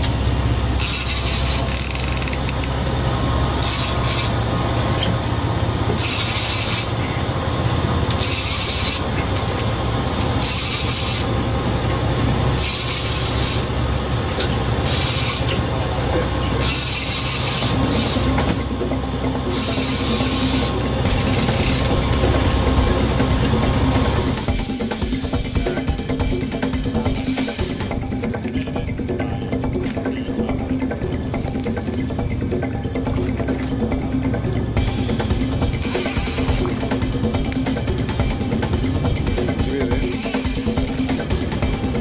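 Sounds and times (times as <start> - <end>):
boat engine humming: 0.0 - 25.0
fishing reel rasping: 0.8 - 2.6.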